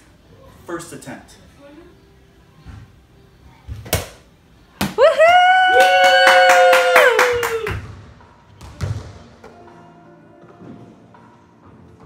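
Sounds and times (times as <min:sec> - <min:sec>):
people cheering: 0:04.9 - 0:07.8
rapid clapping: 0:05.7 - 0:07.8.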